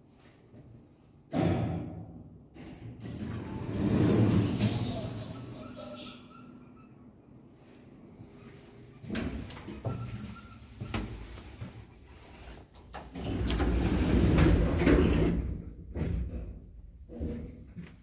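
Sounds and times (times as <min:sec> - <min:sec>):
elevator doors sliding closed: 0:02.6 - 0:07.1, 0:12.9 - 0:16.4.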